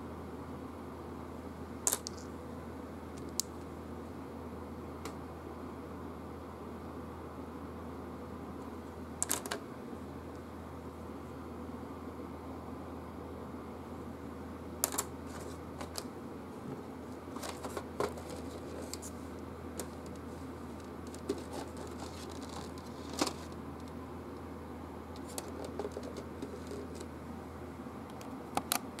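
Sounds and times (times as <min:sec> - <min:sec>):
steady low hum: 0:00.0 - 0:29.0
game pieces clicking and knocking: 0:01.9 - 0:02.3.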